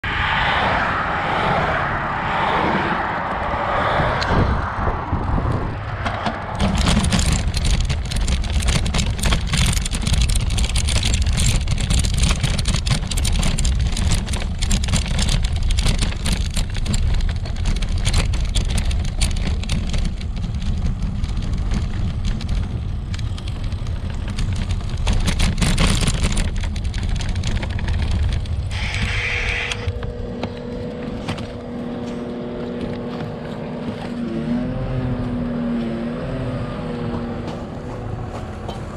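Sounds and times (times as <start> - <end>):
passing cars: 0.0 - 12.2, 26.3 - 38.9
bicycle rumbling on dirt track: 3.3 - 34.5
rapid clatter of knocks: 6.0 - 29.2.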